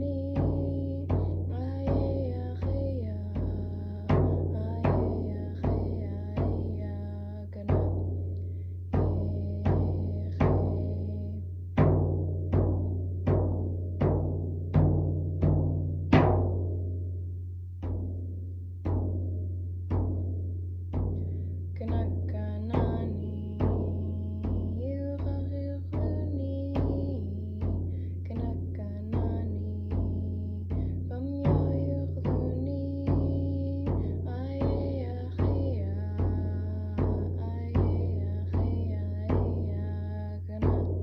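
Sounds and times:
person singing: 0.0s - 7.9s, 21.8s - 41.0s
frame drum beating: 0.0s - 41.0s.

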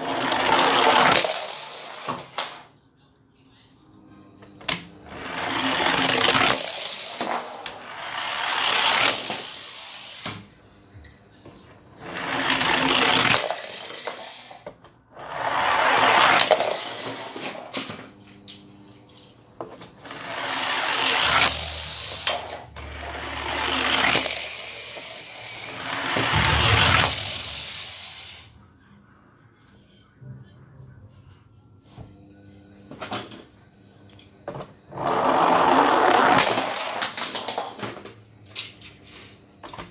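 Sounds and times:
toy cars rattling down a tube: 0.0s - 2.6s, 5.4s - 10.4s, 12.1s - 14.6s, 15.4s - 17.9s, 20.2s - 28.4s, 35.1s - 38.0s.

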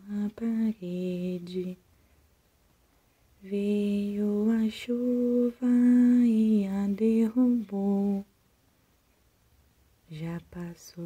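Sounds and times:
woman singing wordless lullaby: 0.0s - 2.1s, 3.3s - 8.5s, 9.9s - 11.0s.

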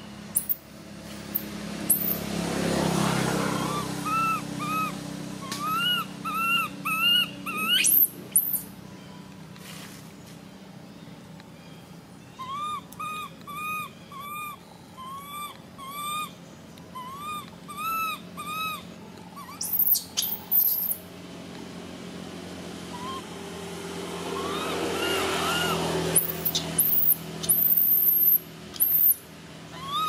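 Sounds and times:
baby monkey crying: 3.1s - 8.7s, 12.3s - 21.0s, 22.9s - 23.4s, 24.0s - 30.0s.

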